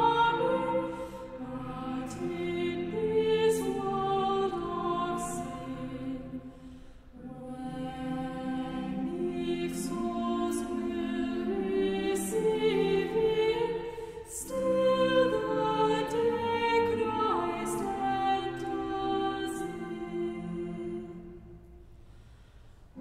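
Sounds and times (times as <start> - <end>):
choir singing held notes: 0.0 - 21.8.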